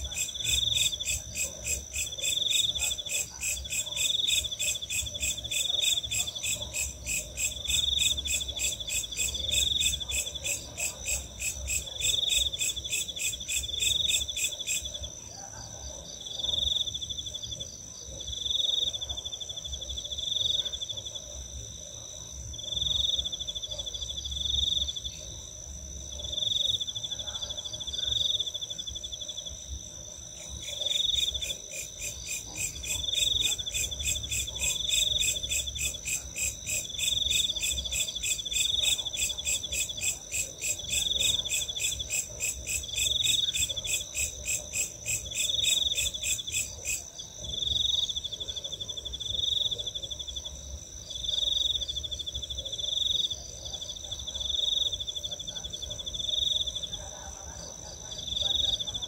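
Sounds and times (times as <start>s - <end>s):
crickets trilling: 22.4s - 59.0s.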